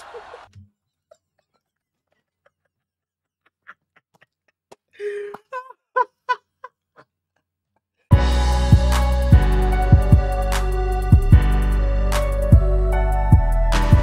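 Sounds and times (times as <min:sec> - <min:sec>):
man laughing hard: 0:02.0 - 0:07.1.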